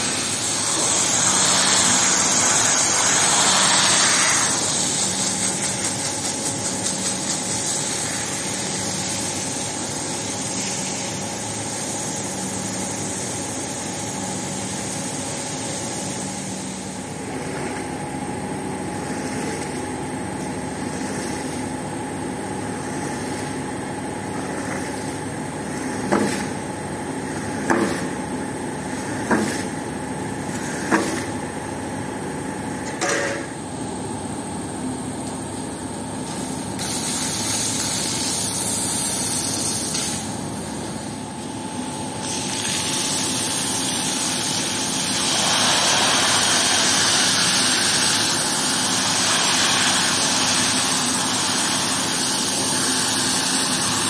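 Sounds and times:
water jet hissing onto floor: 0.0 - 13.2, 36.2 - 40.3, 42.2 - 54.0
pressure washer motor running: 0.0 - 31.7, 35.4 - 54.0.

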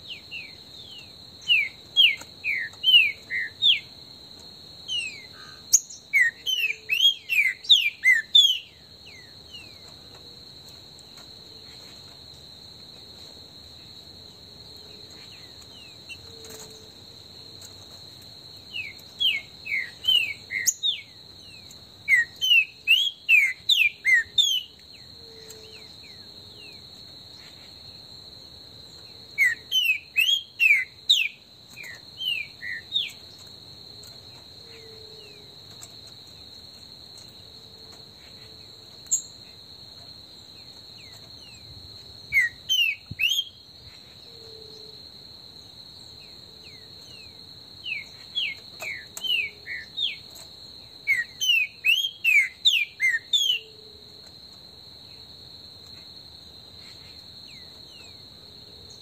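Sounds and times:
high insect drone: 0.0 - 59.0
bird whistling song: 0.1 - 3.9, 4.9 - 9.8, 18.7 - 24.8, 29.4 - 33.2, 42.3 - 43.6, 51.0 - 53.8.

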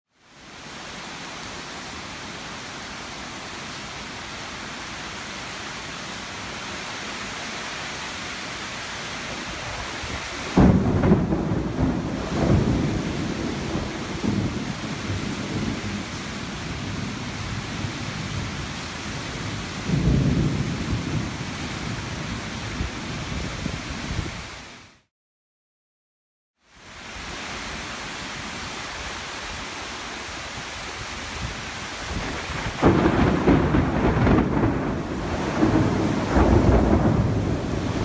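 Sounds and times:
rain hiss: 0.2 - 25.1, 26.6 - 38.0
rolling thunder: 10.5 - 16.1, 19.8 - 22.0, 32.1 - 38.0.

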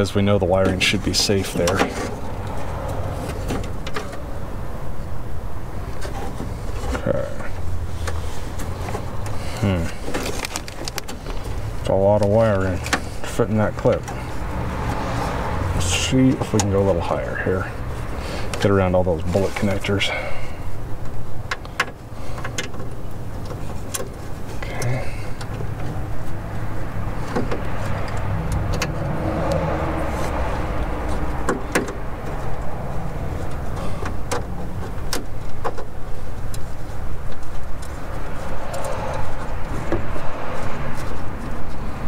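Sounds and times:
connectors clicking and rattling: 5.8 - 17.0, 21.0 - 42.0.

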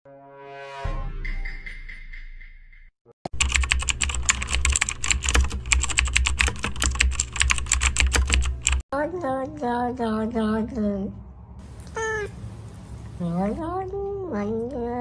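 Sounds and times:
fast typing on a keyboard: 3.3 - 8.8.

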